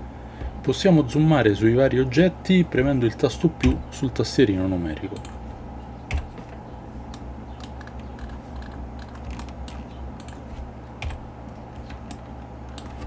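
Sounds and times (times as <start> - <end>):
low steady hum: 0.0 - 13.0
computer keys clicking: 5.1 - 5.4, 6.1 - 6.4, 7.1 - 13.0.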